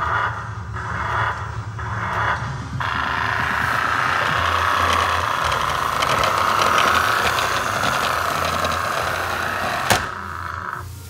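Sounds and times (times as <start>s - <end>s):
small drivetrain clicks: 2.8s - 10.4s
toy car motor whirring: 2.8s - 10.8s.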